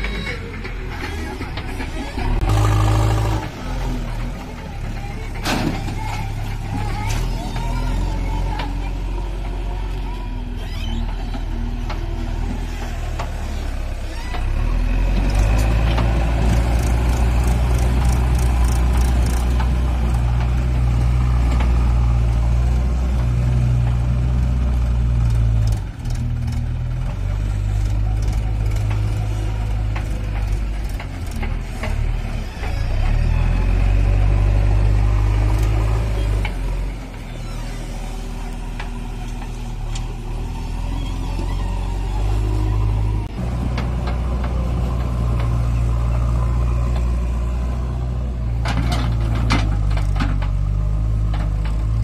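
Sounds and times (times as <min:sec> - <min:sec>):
diesel engine working: 0:00.0 - 0:52.0.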